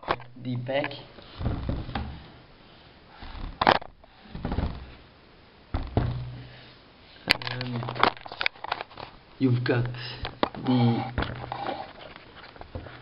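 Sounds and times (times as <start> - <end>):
speaker handling rubs and bumps: 0.0 - 2.4, 3.2 - 5.1, 5.8 - 6.6, 10.2 - 13.0.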